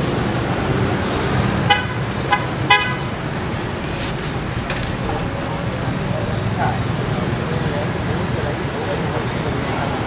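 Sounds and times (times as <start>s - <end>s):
road traffic rumble: 0.0s - 10.0s
vehicle horn toots: 1.6s - 3.2s.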